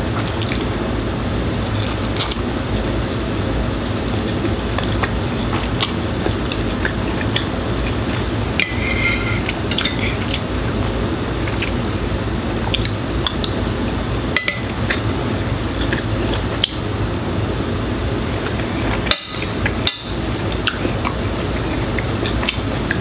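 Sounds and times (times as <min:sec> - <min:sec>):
air conditioner hum: 0:00.0 - 0:23.0
slurping and chewing: 0:01.7 - 0:11.9.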